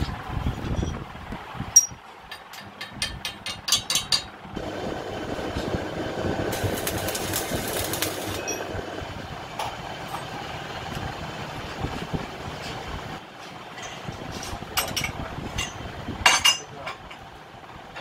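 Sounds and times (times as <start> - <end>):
welding arc crackling: 4.6 - 9.5.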